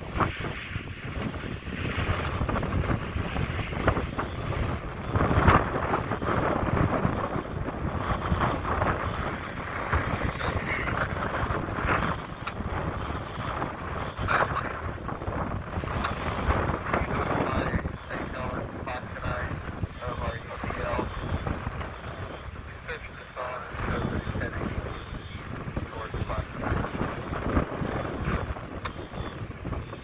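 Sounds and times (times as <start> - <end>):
fire hose water rushing: 0.0 - 29.9
wind buffeting microphone: 0.0 - 30.0.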